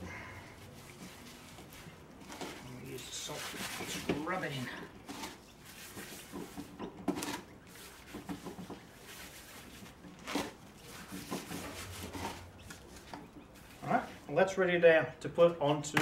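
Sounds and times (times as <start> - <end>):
gloved hands rubbing meat: 0.5 - 4.6, 5.4 - 6.8, 7.6 - 14.3.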